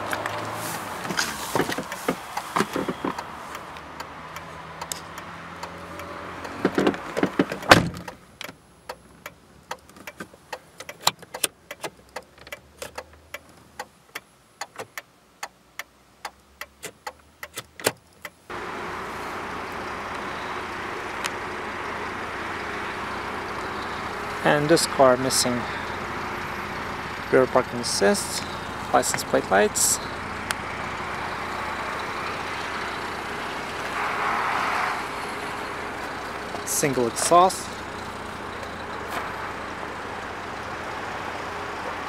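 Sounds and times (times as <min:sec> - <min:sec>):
car door shutting: 0:01.0 - 0:03.4, 0:06.6 - 0:08.2
clicks of car buttons and switches: 0:01.1 - 0:18.4
steady outdoor hiss: 0:07.6 - 0:42.0.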